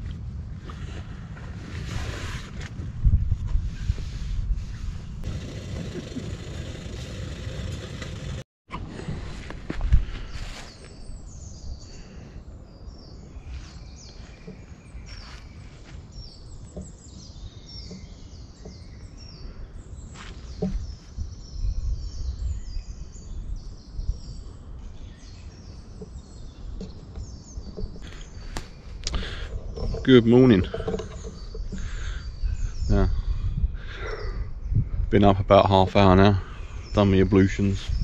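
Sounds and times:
small birds chirping: 0:10.0 - 0:38.0.

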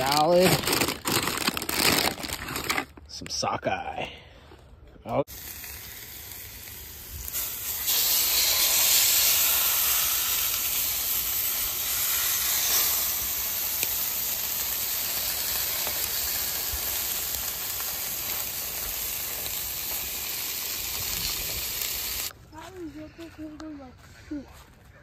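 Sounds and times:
food sizzling on a griddle: 0:05.3 - 0:22.3.

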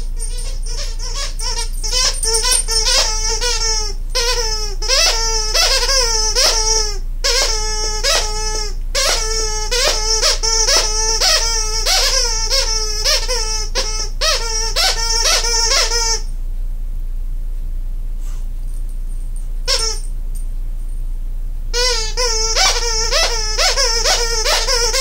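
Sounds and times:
dog toy squeaker squealing: 0:00.0 - 0:16.3, 0:19.7 - 0:20.1, 0:21.7 - 0:25.0.

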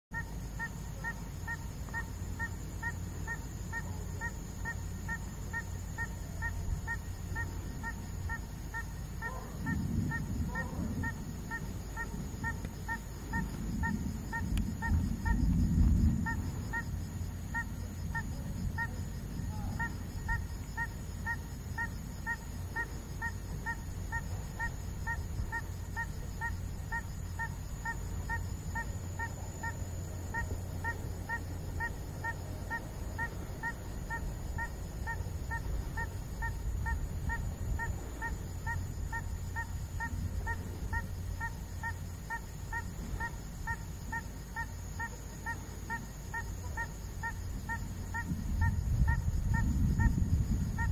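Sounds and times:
honking animal call: 0:00.1 - 0:15.5, 0:16.2 - 0:50.1
low rumble: 0:09.6 - 0:20.6.

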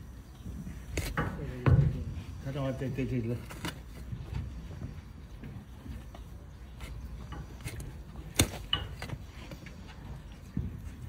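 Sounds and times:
hoof knife scraping hoof: 0:06.7 - 0:09.9.

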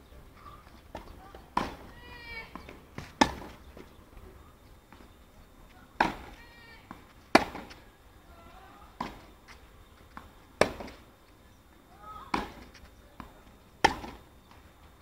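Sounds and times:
tennis ball hit with racket: 0:00.9 - 0:01.9, 0:02.6 - 0:03.5, 0:06.0 - 0:07.8, 0:10.2 - 0:11.0, 0:12.3 - 0:12.6, 0:13.8 - 0:14.2
tennis ball bouncing: 0:00.9 - 0:03.6, 0:06.0 - 0:07.8, 0:10.1 - 0:11.0, 0:12.3 - 0:14.2.

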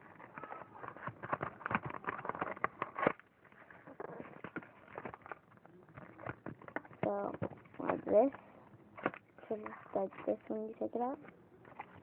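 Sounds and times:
paper crinkling and clicking: 0:00.0 - 0:08.4, 0:11.2 - 0:12.0.

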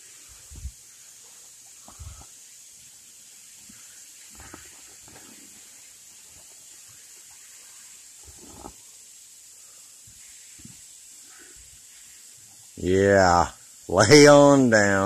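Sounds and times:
steady high hiss: 0:00.0 - 0:15.0
boots scraping on rock: 0:08.2 - 0:08.8.

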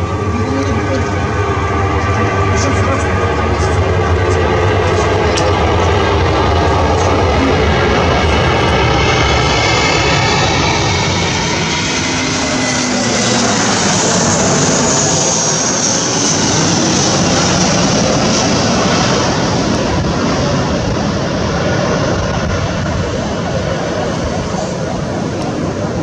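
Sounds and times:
jet airliner flying overhead: 0:00.0 - 0:26.0.

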